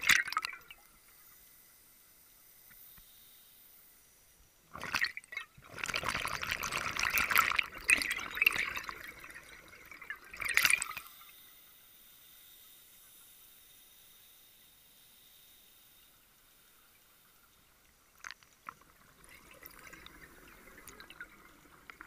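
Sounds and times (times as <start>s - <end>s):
underwater bubbles from regulator: 4.8s - 11.2s, 18.2s - 22.0s.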